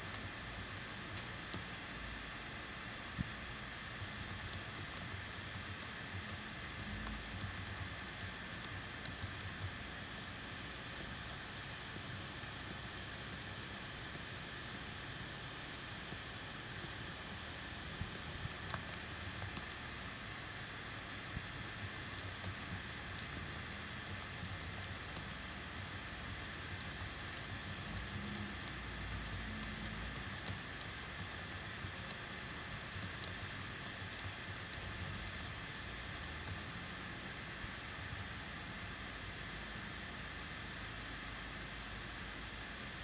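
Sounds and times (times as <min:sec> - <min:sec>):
electric fan hissing: 0:00.0 - 0:43.0
light clicks and ticks: 0:21.7 - 0:36.7.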